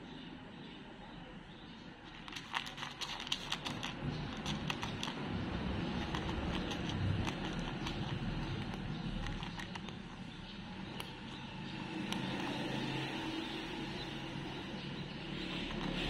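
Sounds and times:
cat crunching dry kibble: 2.0s - 12.9s, 15.4s - 16.0s.

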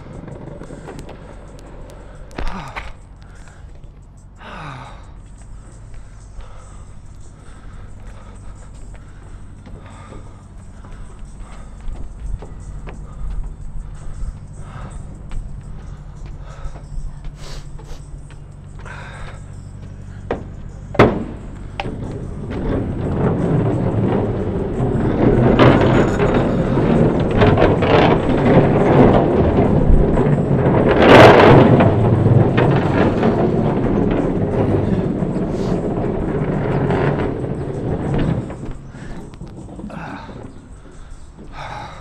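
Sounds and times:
longboard wheels rumbling on pavement: 0.0s - 42.0s.

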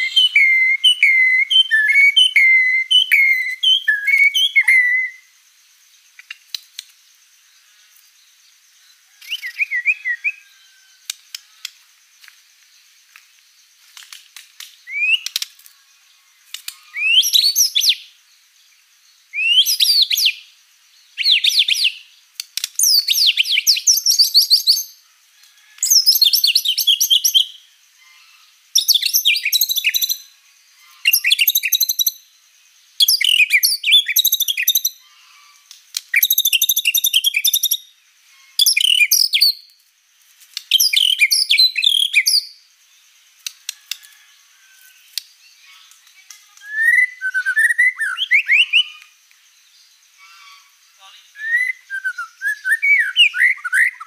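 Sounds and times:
bird singing whistled phrases: 0.0s - 5.3s, 9.2s - 10.5s, 14.8s - 15.4s, 19.4s - 20.4s, 31.1s - 32.2s, 33.0s - 35.0s, 36.2s - 37.9s, 38.6s - 39.7s, 40.8s - 42.6s, 46.5s - 49.1s, 51.3s - 54.0s.

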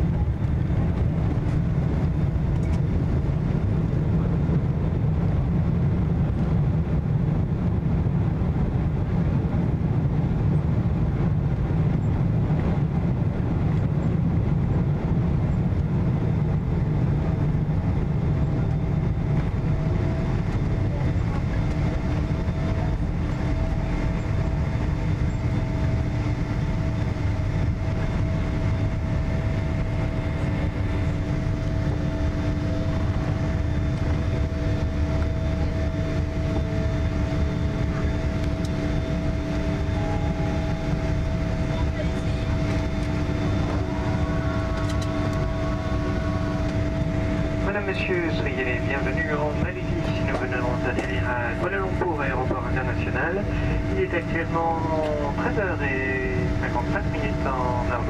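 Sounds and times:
jet engine hum: 0.0s - 58.0s
low rumble of wheels on runway: 0.0s - 58.0s.

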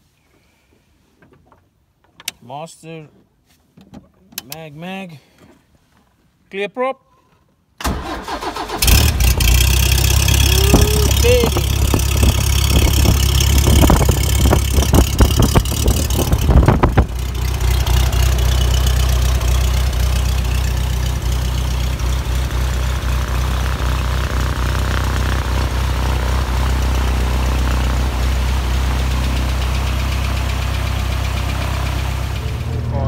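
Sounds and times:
aircraft engine idling: 8.5s - 33.0s
aircraft engine running unevenly: 10.3s - 31.3s.

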